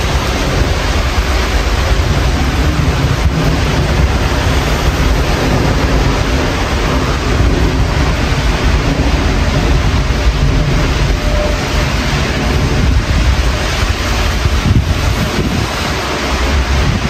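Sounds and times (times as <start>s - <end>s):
road traffic: 0.0s - 17.0s
storm wind buffeting microphone: 0.0s - 17.0s.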